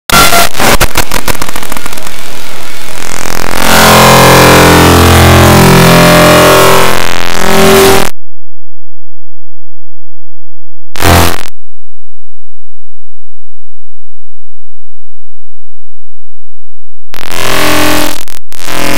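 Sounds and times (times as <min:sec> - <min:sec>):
harsh distorted electronic noise: 0:00.0 - 0:08.2, 0:11.0 - 0:11.5, 0:17.2 - 0:18.9.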